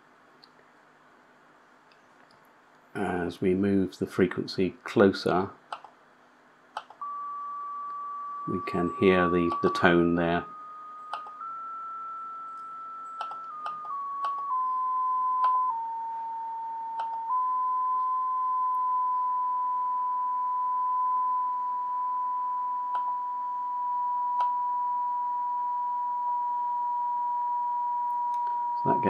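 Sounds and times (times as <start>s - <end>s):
faint tuning clicks: 5.7s - 6.0s, 6.7s - 10.0s, 10.9s - 17.3s, 22.8s - 23.2s, 24.3s - 24.7s, 28.1s - 28.9s.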